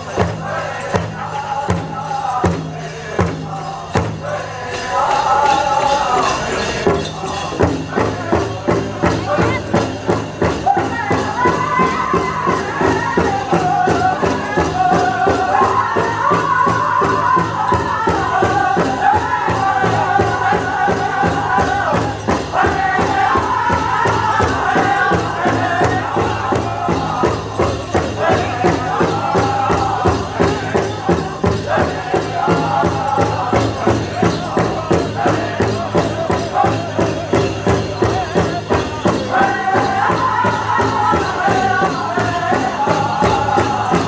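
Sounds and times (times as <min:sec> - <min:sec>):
group singing in unison: 0:00.0 - 0:44.0
steady big drumbeat: 0:00.0 - 0:44.0.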